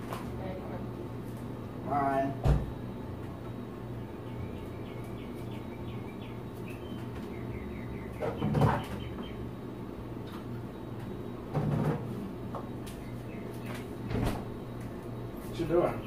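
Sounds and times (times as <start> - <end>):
refrigerator hum: 0.0 - 16.0
refrigerator knocks and clatters: 2.4 - 2.8, 8.2 - 9.1, 11.5 - 12.1, 14.1 - 14.6.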